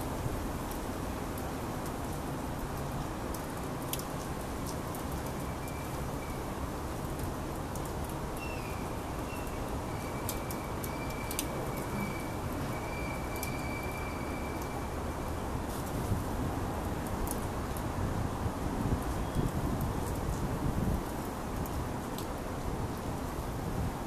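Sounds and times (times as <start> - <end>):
outdoor background noise: 0.0 - 24.0
faint crackling clicks: 2.8 - 5.8, 21.6 - 22.3.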